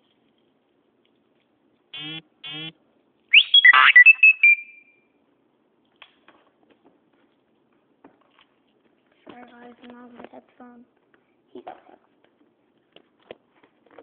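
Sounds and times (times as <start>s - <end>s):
phone buzzing tones: 2.0s - 2.7s.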